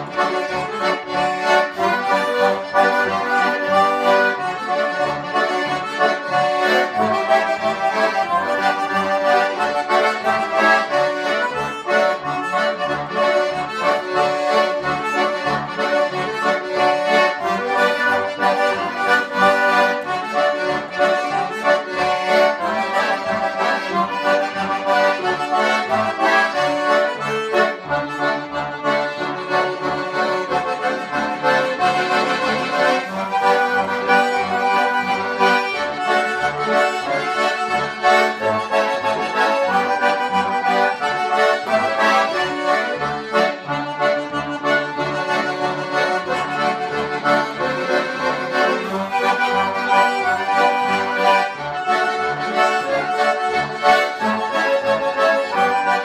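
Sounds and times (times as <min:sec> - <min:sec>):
concertinas and accordion playing: 0:00.0 - 0:56.0.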